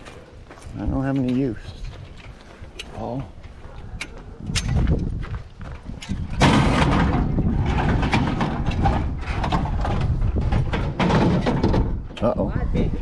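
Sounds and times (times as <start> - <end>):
metal clattering and rattling: 4.0 - 12.4.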